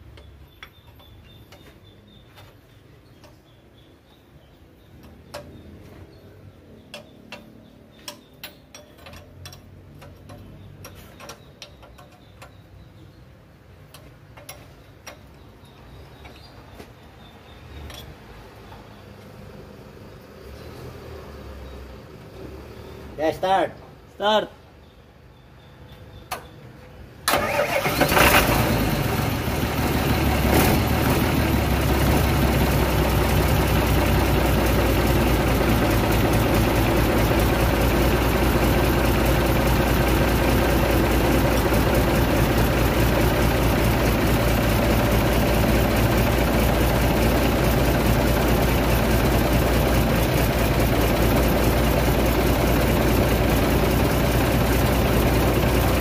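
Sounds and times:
diesel engine starting and idling: 0:27.2 - 0:56.0.

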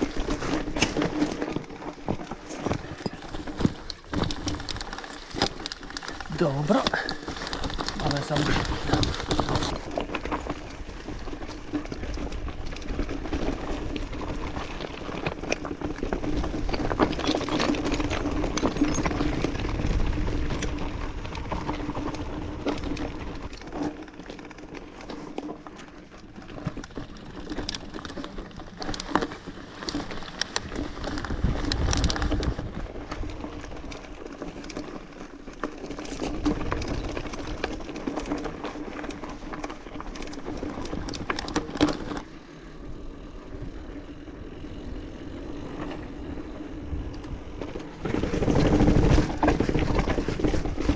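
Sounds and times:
bike clicks and rattles: 0:00.0 - 0:50.9
tyres crunching over gravel: 0:00.0 - 0:50.9.

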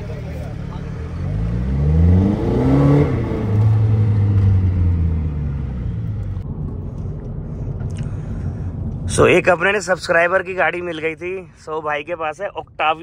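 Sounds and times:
car engine accelerating: 0:00.0 - 0:09.3.

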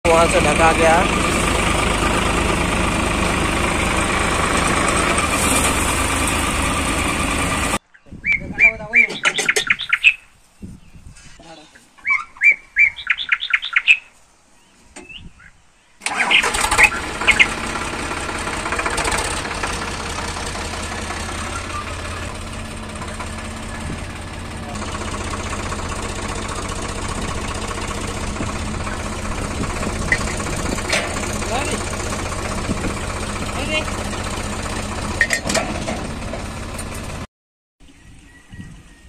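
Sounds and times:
tractor engine starting and running: 0:00.0 - 0:07.8, 0:16.0 - 0:37.3
bird chirping: 0:07.8 - 0:17.5, 0:37.8 - 0:39.0.

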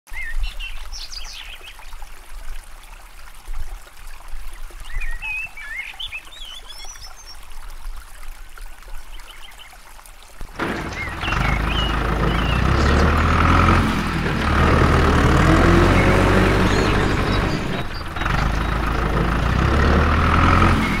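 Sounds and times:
stream trickling over pebbles: 0:00.1 - 0:21.0
birds chirping: 0:10.6 - 0:21.0.

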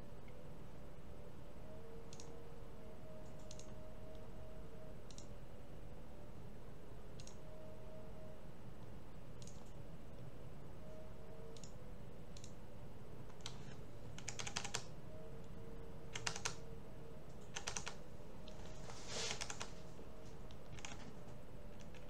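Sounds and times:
low room noise: 0:00.0 - 0:22.0
computer mouse and keyboard clicks: 0:02.1 - 0:02.3, 0:03.2 - 0:04.2, 0:05.1 - 0:05.3, 0:07.2 - 0:07.4, 0:09.4 - 0:09.7, 0:13.3 - 0:14.9, 0:16.1 - 0:16.6, 0:17.3 - 0:18.6, 0:19.3 - 0:19.7, 0:20.5 - 0:21.1.

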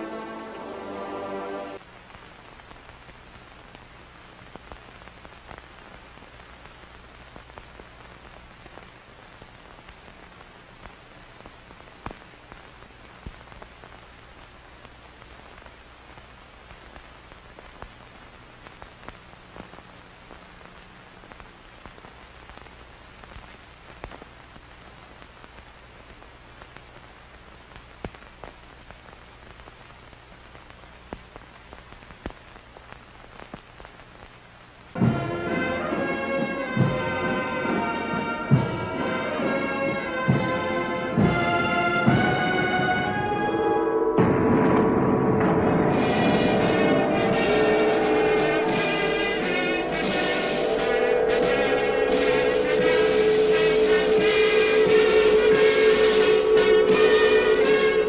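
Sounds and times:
old film soundtrack hiss: 0:00.0 - 0:58.0
crackles and pops: 0:01.7 - 0:35.0
low hum: 0:43.4 - 0:58.0.

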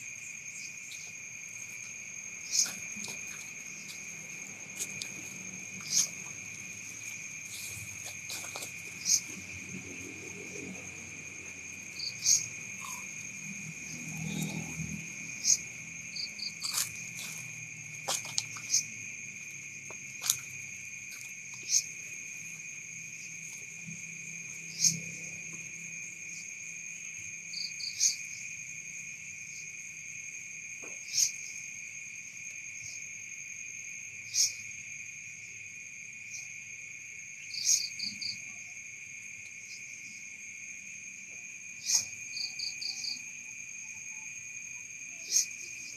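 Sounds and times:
short insect pulses: 0:00.0 - 0:26.4
high-pitched cricket trill: 0:00.0 - 0:45.9
sharp insect chirp: 0:00.0 - 0:45.9.

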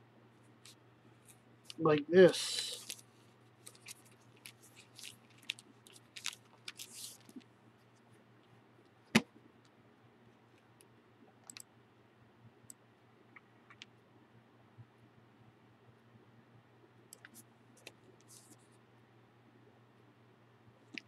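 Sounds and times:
faint steady hum: 0:00.0 - 0:21.0
book pages rustling: 0:02.6 - 0:08.0.

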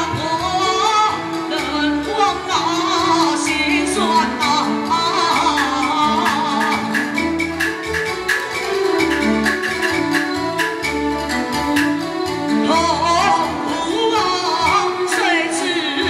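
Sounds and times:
person singing into microphone: 0:00.0 - 0:07.3, 0:12.4 - 0:16.0
live instrumental accompaniment: 0:00.0 - 0:16.0
percussion clicks: 0:05.6 - 0:12.3.

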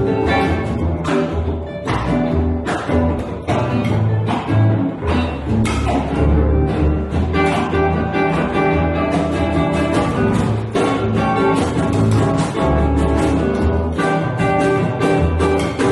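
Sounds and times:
acoustic guitar strumming: 0:00.0 - 0:15.9
double bass: 0:00.0 - 0:15.9
light percussion: 0:00.0 - 0:15.9.

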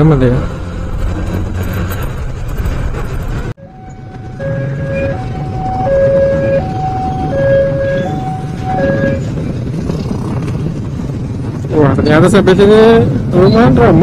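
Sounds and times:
low rumble of road traffic: 0:00.0 - 0:14.0
level crossing alarm two-tone signal: 0:03.6 - 0:09.3.

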